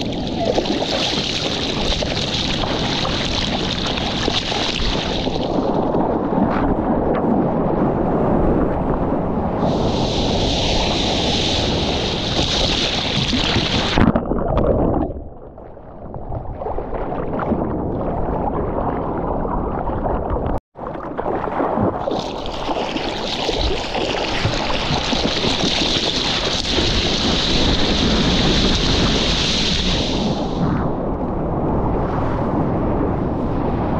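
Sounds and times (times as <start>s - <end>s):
rushing surf: 0.0s - 7.2s, 7.8s - 14.0s, 21.6s - 31.0s
wind noise: 0.0s - 33.9s.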